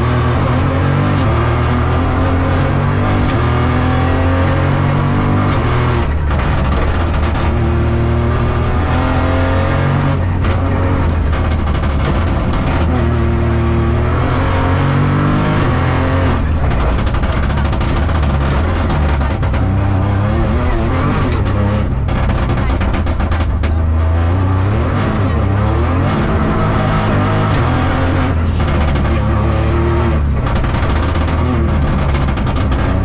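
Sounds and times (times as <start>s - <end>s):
car engine accelerating: 0.0s - 33.0s.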